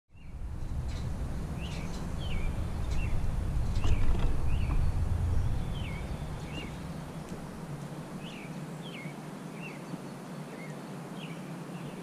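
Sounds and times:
steady low rumble: 0:00.1 - 0:08.5
songbird calling: 0:00.1 - 0:12.0.

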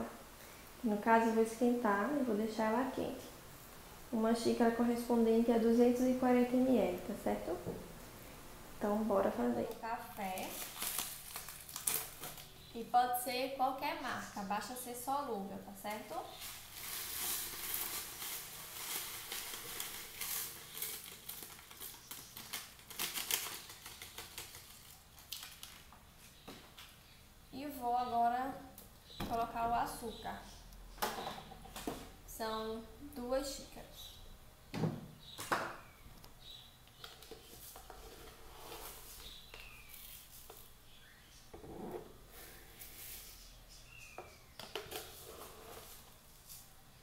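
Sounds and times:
cup scraping sugar: 0:16.2 - 0:22.4, 0:37.3 - 0:40.6, 0:45.0 - 0:46.1
coffee granules pouring: 0:16.2 - 0:25.9.

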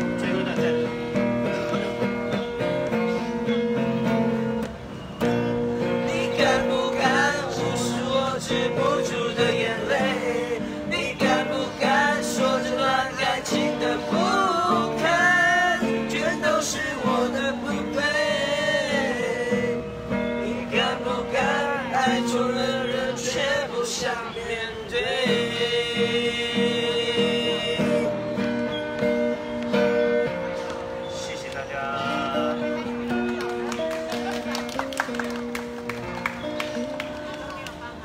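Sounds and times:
acoustic guitar strumming: 0:00.0 - 0:37.4
group singing: 0:06.0 - 0:28.2.

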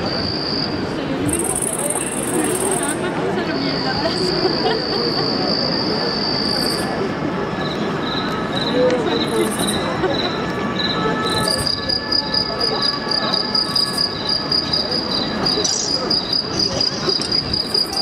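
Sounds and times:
low crowd murmur: 0:00.0 - 0:18.0
cricket-like chirping: 0:07.6 - 0:18.0.

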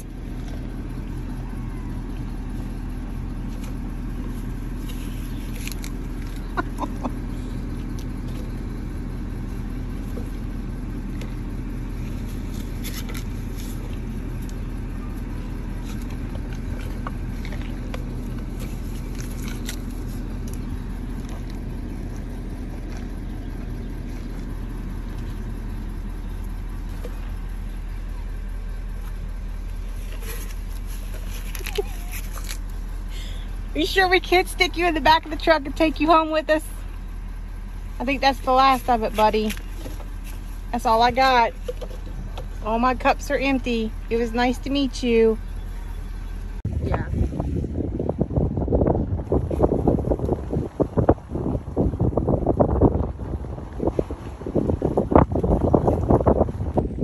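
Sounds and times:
truck engine idling: 0:00.0 - 0:57.0.

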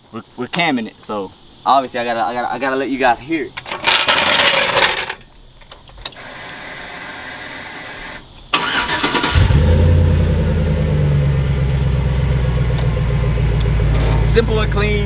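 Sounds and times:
starter motor cranking: 0:08.5 - 0:09.6
pickup engine deep idle: 0:09.6 - 0:15.0.

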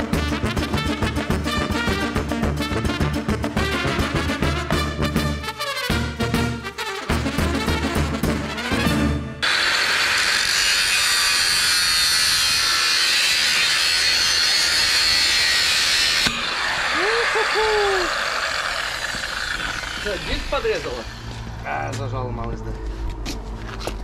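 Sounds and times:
angle grinder cutting metal pipe: 0:09.4 - 0:21.7
angle grinder running free: 0:09.4 - 0:21.8.

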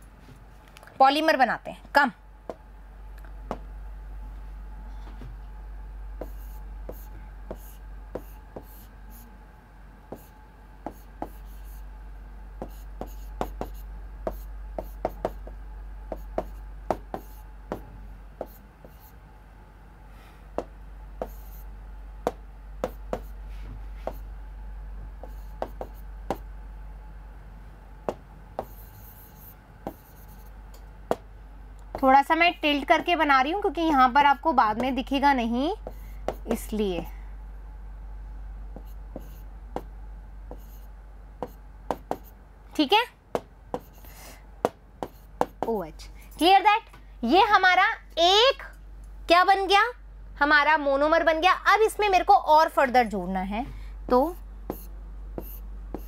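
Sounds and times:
low steady hum: 0:00.0 - 0:56.0
pen scratching on paper: 0:06.2 - 0:09.2, 0:10.9 - 0:11.8, 0:12.6 - 0:15.5, 0:21.2 - 0:21.7, 0:25.2 - 0:26.0, 0:28.6 - 0:30.5, 0:40.5 - 0:42.3, 0:45.0 - 0:45.8, 0:54.7 - 0:56.0
pen tapping on writing surface: 0:12.6 - 0:18.6, 0:22.3 - 0:23.3, 0:25.2 - 0:26.4.

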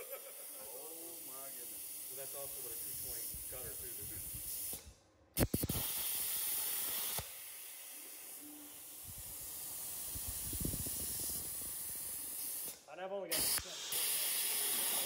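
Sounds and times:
plasma cutter arc hissing: 0:00.0 - 0:15.0
steady air hiss: 0:00.0 - 0:15.0.

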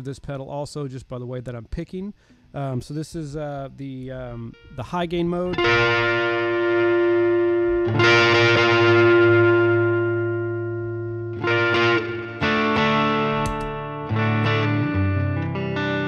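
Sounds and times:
overdriven electric guitar chords: 0:04.4 - 0:16.0.

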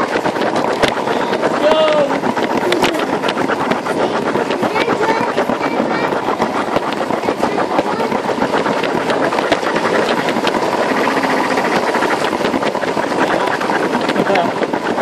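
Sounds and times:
toy train motor whirring: 0:00.0 - 0:15.0.

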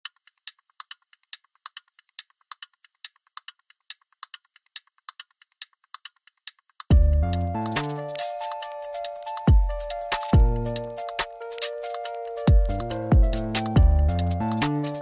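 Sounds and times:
rapid keyboard key clicks: 0:00.0 - 0:06.9.

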